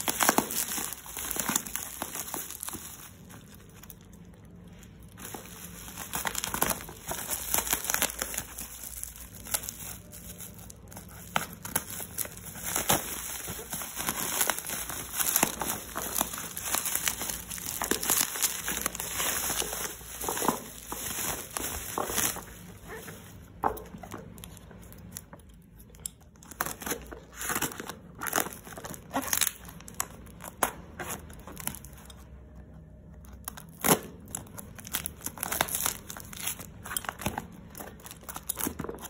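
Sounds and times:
packaging crinkling and tearing: 0.0 - 32.3, 33.0 - 39.0.

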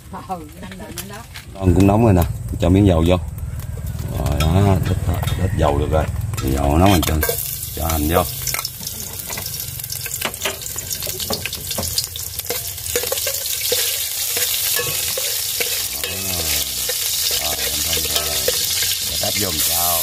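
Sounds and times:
onions sizzling in a pan: 6.1 - 20.0
utensil stirring against pan: 6.8 - 20.0.

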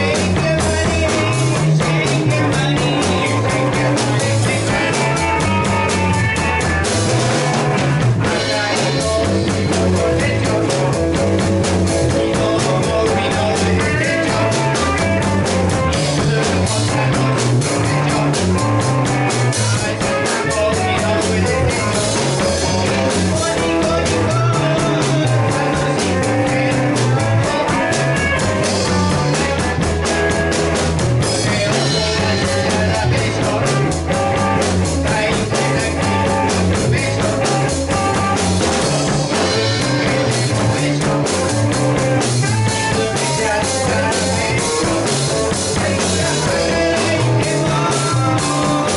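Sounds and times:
bass line: 0.0 - 48.9
drum kit: 0.0 - 48.9
electric guitars: 0.0 - 48.9.

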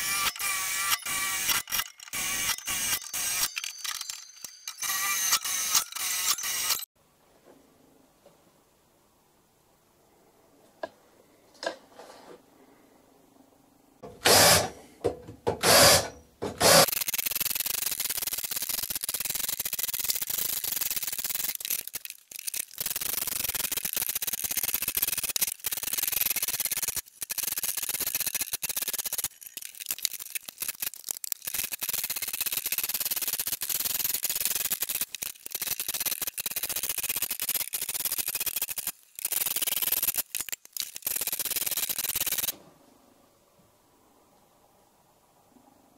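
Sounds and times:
cordless drill drilling metal: 0.0 - 6.8, 14.2 - 14.8, 15.6 - 16.9.

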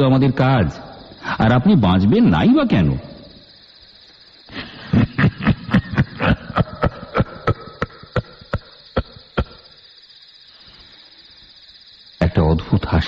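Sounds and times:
man laughing eerily: 4.5 - 9.7.

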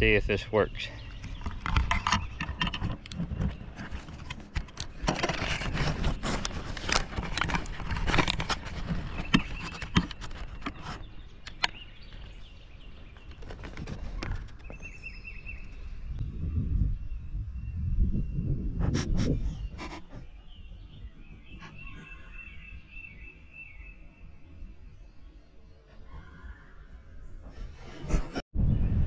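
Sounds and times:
camera handling taps and scrapes: 1.0 - 12.2.

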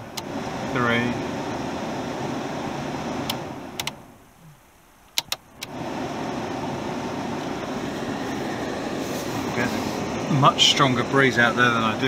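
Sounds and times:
heater blower fan: 0.0 - 4.0, 5.5 - 12.0
control switch clicking: 3.2 - 4.0, 5.0 - 5.8.

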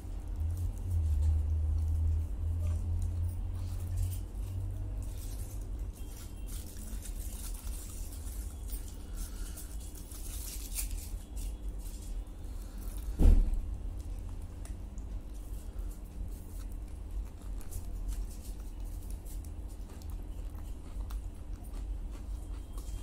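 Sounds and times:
steady low hum: 0.0 - 23.0
sharp thump: 13.2 - 13.6
chewing with wet mouth clicks: 16.2 - 23.0.

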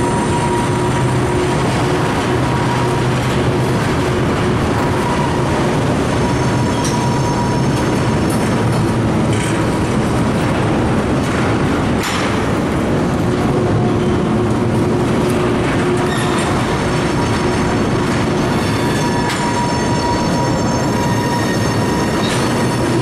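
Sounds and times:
train wheels rumbling on rails: 0.0 - 23.0
faint high wheel squeals: 5.0 - 8.2, 18.3 - 23.0.

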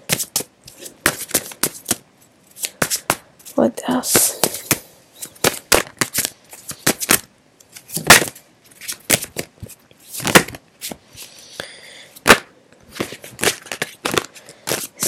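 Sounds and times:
cards being shuffled: 2.6 - 11.3, 12.2 - 15.0.

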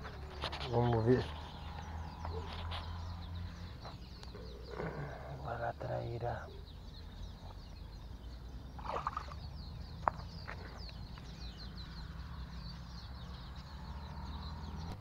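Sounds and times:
birds twittering: 0.0 - 15.0
splash in shallow water: 8.8 - 9.5.

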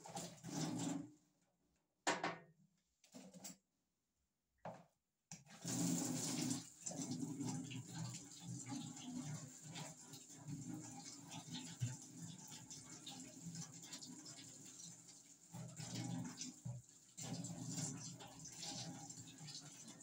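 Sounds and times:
tap water splashing into sink: 4.7 - 20.0.

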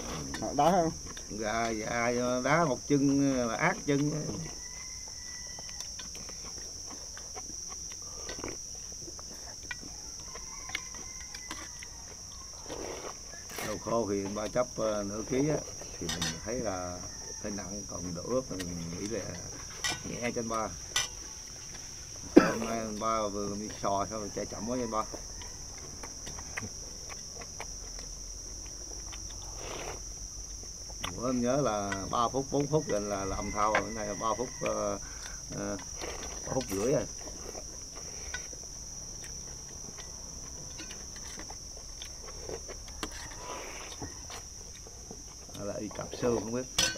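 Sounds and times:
people slurping and chewing: 0.0 - 16.4, 25.1 - 31.2, 31.8 - 46.5
insects droning: 0.0 - 46.9.

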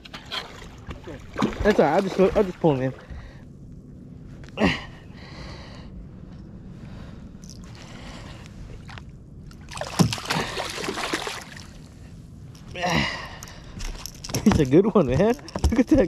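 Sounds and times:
low steady rumble: 0.0 - 16.0
fish splashing at water surface: 9.6 - 11.7.

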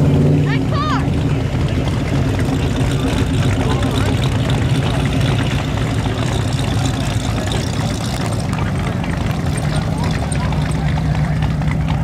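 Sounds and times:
car engines driving slowly: 0.0 - 12.0.

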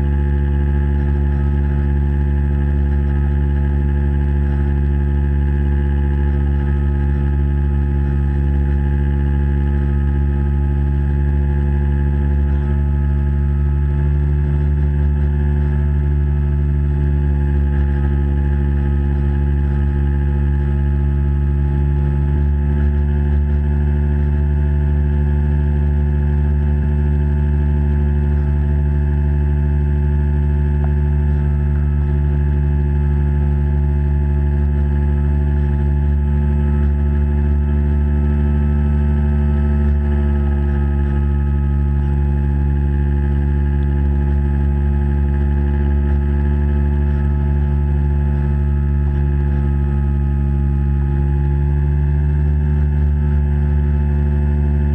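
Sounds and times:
model boat motor humming underwater: 0.0 - 54.9.

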